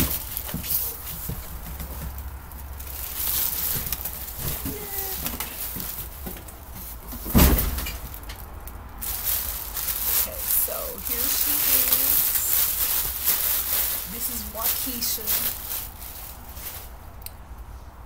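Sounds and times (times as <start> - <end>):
plastic and cardboard rustling: 0.0 - 17.2
low steady hum: 0.0 - 18.0
loud thump: 7.2 - 7.9.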